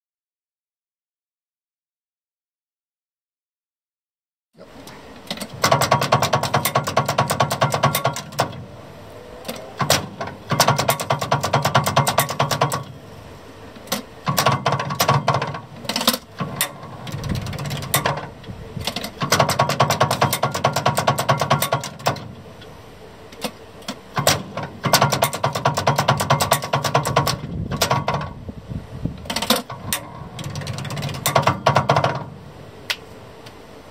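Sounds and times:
rapid mechanical clatter: 5.2s - 8.8s, 9.4s - 28.4s, 29.2s - 32.5s
sharp contactor clicks: 13.8s - 22.7s.

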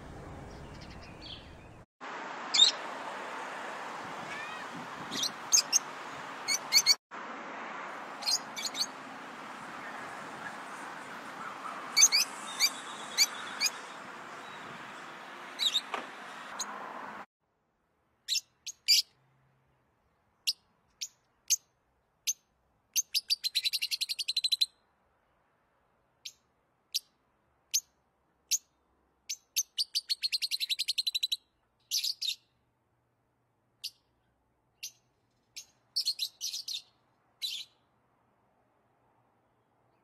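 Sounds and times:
lovebirds chirping: 0.1s - 1.9s, 4.3s - 7.0s, 8.2s - 16.0s, 23.0s - 24.7s, 29.3s - 32.6s, 33.8s - 37.9s.

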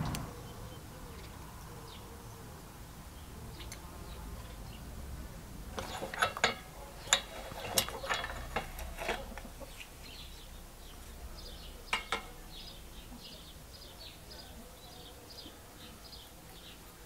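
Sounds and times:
vise clicking and knocking: 5.8s - 9.5s, 11.9s - 12.3s.

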